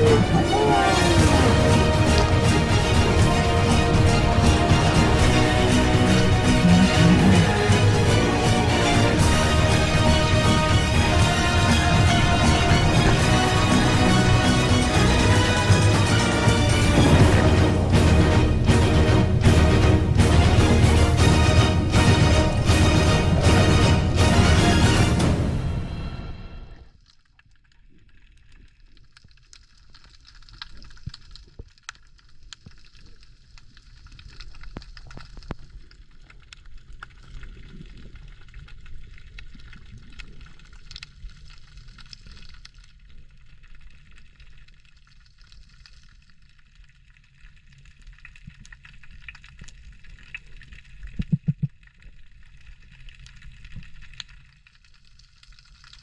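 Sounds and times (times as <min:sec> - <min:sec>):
underwater rumble: 0:00.0 - 0:56.0
low underwater thumps: 0:15.5 - 0:25.0
underwater crackling and clicking: 0:26.8 - 0:56.0.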